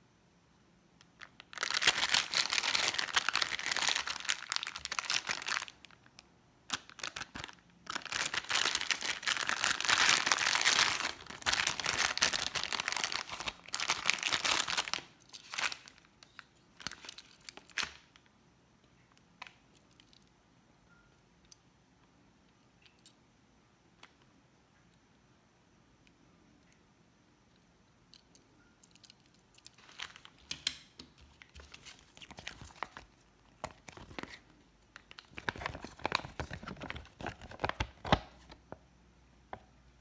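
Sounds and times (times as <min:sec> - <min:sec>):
plastic pouch crinkling: 0:01.1 - 0:18.2, 0:29.6 - 0:30.5, 0:31.3 - 0:38.6.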